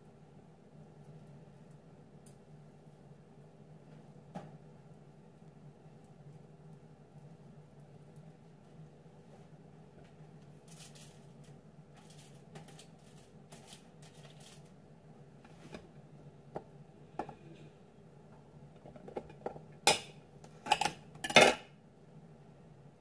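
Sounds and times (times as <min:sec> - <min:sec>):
soft handling noise: 0:07.1 - 0:14.8, 0:15.4 - 0:17.7.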